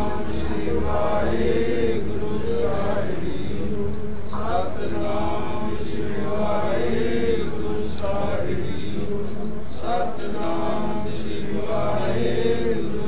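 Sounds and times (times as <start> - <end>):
voices chanting: 0.0 - 13.0.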